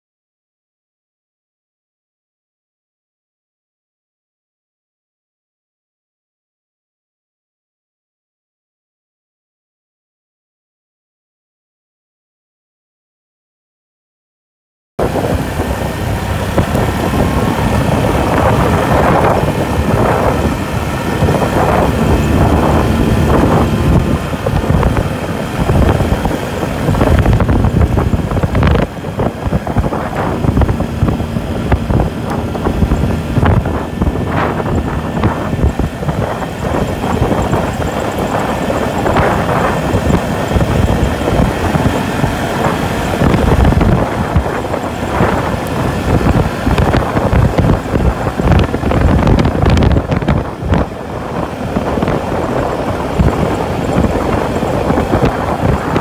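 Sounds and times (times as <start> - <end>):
atv engine cruising: 15.0 - 56.0
wind buffeting microphone: 15.0 - 56.0.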